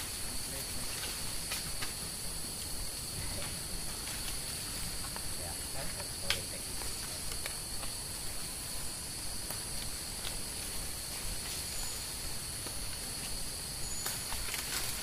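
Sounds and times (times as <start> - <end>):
insects droning: 0.0 - 15.0.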